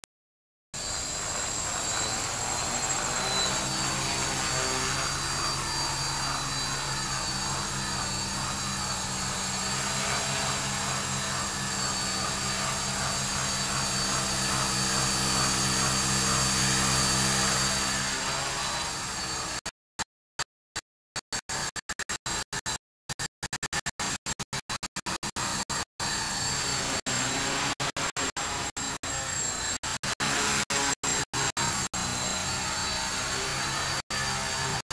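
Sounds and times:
model aircraft propellers buzzing: 0.8 - 19.6, 28.4 - 34.9.

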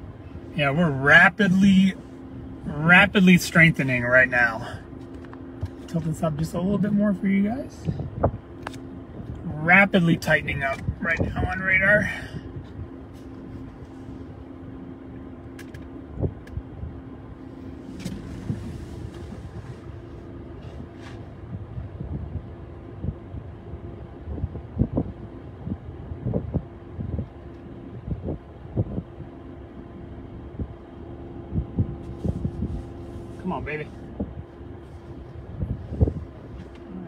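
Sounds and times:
steady low hum: 0.0 - 37.0
wind buffeting microphone: 7.7 - 9.4, 21.4 - 29.4, 30.3 - 33.1, 34.0 - 36.7.

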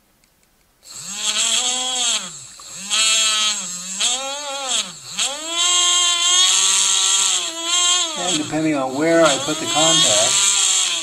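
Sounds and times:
toy motor whining hum: 0.8 - 11.0
steady hiss: 4.7 - 11.0.

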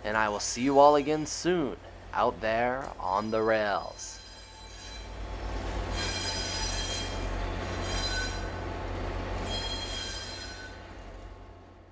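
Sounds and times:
low locomotive rumble: 0.0 - 11.9
train wheels squealing on rails: 3.0 - 11.4.

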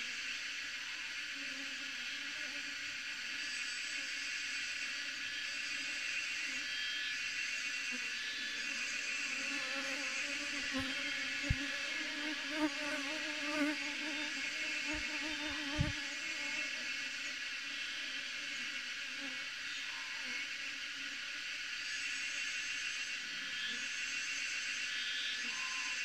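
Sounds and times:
bee swarm buzzing: 8.9 - 17.1.

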